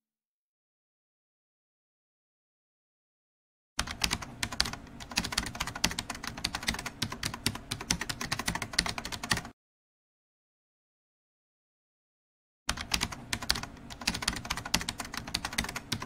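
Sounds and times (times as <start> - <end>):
typing on computer keyboard: 3.8 - 9.5, 12.7 - 16.0.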